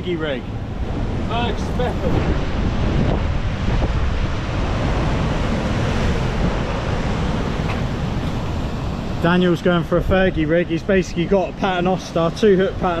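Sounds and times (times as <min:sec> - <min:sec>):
wind buffeting microphone: 0:00.0 - 0:13.0
sea washing against rocks: 0:00.9 - 0:09.9.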